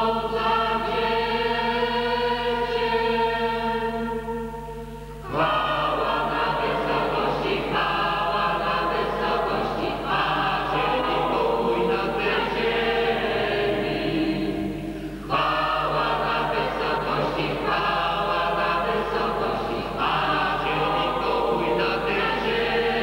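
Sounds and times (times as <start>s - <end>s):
mixed choir singing a carol: 0.0s - 23.0s.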